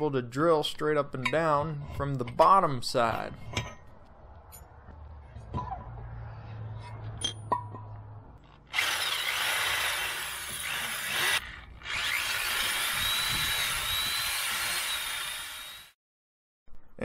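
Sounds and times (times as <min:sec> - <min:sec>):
drill boring into metal: 0:08.7 - 0:16.0.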